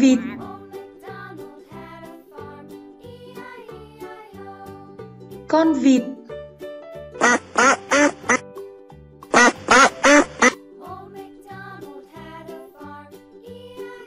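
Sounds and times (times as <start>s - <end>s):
duck quacking: 7.2s - 8.4s, 9.3s - 10.6s.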